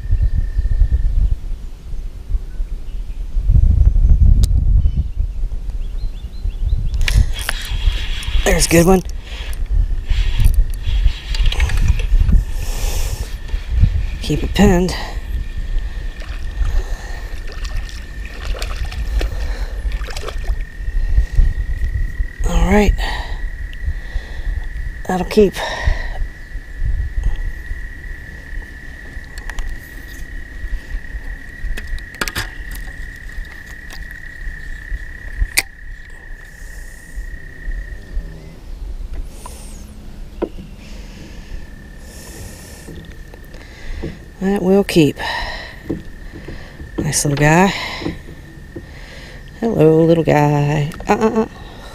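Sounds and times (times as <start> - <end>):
water and wind rumble: 0.0 - 51.9
frog trilling: 7.3 - 51.9
fish splashing at surface: 16.2 - 20.6
faint high whine: 23.4 - 51.0.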